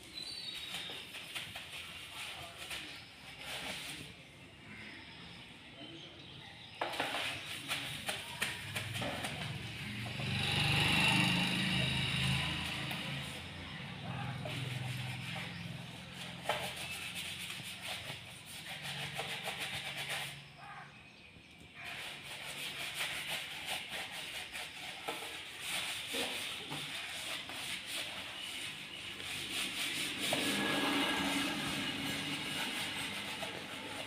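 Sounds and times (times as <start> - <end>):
hand rubbing strokes: 0.2 - 4.3, 21.8 - 34.0.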